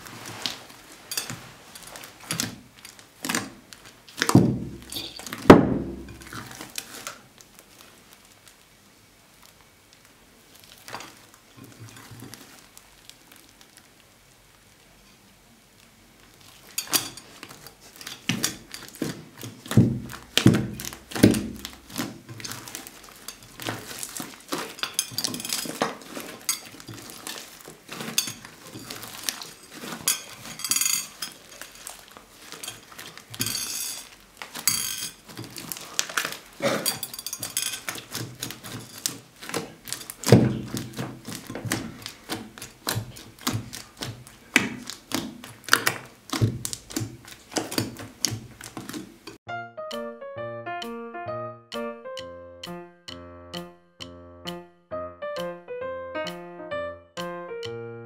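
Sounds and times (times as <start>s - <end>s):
slime squelching thumps: 2.0s - 7.0s, 16.4s - 33.5s, 34.4s - 49.4s
slime clicking and popping: 37.9s - 49.0s.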